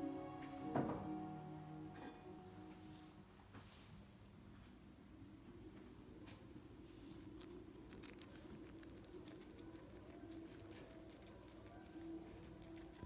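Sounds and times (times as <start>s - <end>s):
low steady hum: 0.0s - 13.0s
guinea pig crunching food: 6.8s - 13.0s.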